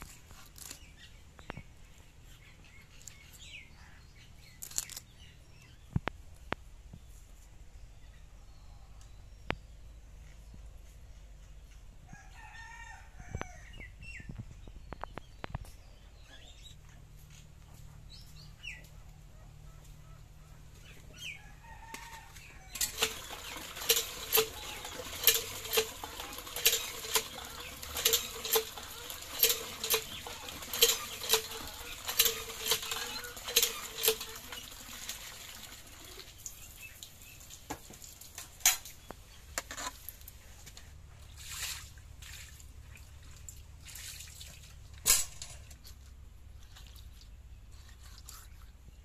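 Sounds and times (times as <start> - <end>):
hand pump squeaking and clanking: 22.0 - 35.8
water gushing into metal bucket: 22.7 - 38.9.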